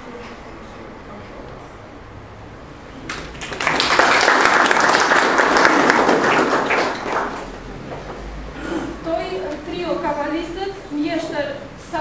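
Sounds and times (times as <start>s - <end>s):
audience clapping: 3.0s - 7.6s.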